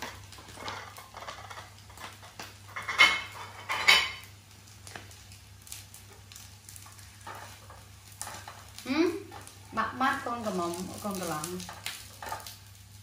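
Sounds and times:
dishes clinking: 0.0s - 4.3s.

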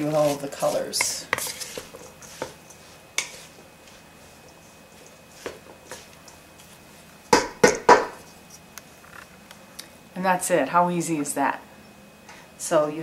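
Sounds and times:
wooden knocks on bowl: 7.4s - 8.2s.

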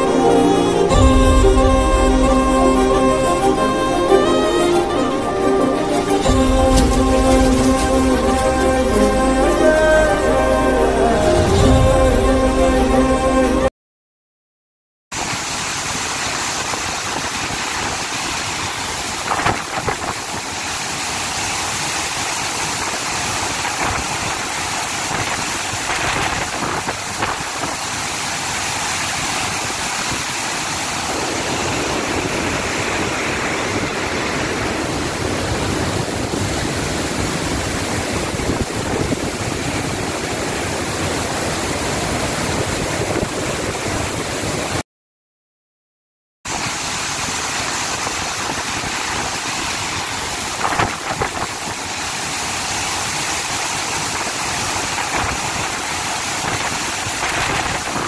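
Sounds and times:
rushing floodwater roar: 0.0s - 13.7s, 15.2s - 44.8s, 46.5s - 58.0s
deep rumble: 0.9s - 3.6s, 10.6s - 13.7s.

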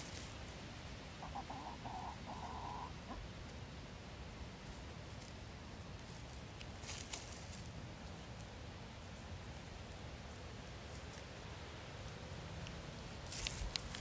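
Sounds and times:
hen clucking: 1.1s - 3.3s
scratchy crackles: 13.2s - 14.0s.

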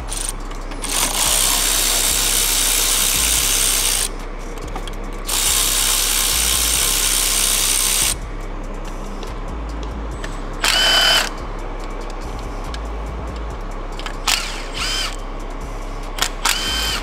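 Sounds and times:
cordless electric ratchet running: 0.0s - 8.2s, 10.6s - 11.4s, 12.6s - 15.2s, 16.2s - 17.0s.

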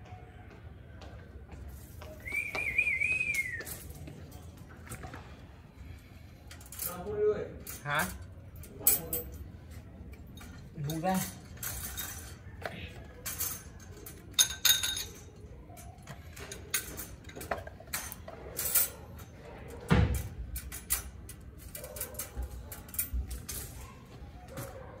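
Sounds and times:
ringing clinks: 10.1s - 12.6s, 13.2s - 19.3s.

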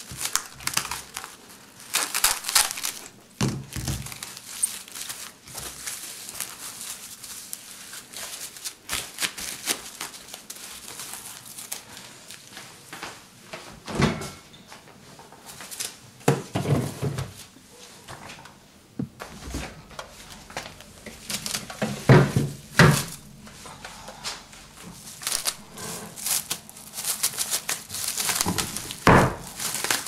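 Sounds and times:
cling film crinkling: 0.0s - 12.7s, 19.9s - 23.3s, 24.6s - 30.0s.

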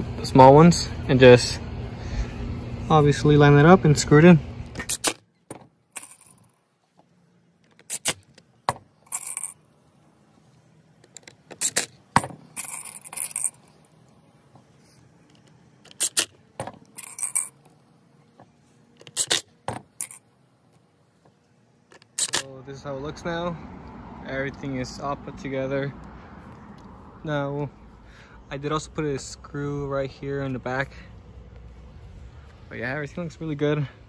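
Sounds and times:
metallic clinks of screws: 6.0s - 6.5s, 9.0s - 9.6s, 12.5s - 13.8s, 16.9s - 17.7s, 20.0s - 20.2s.

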